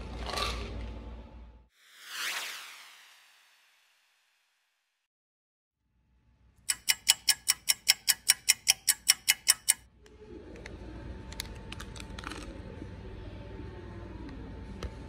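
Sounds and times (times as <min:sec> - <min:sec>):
clock ticking fast: 0:06.7 - 0:09.8.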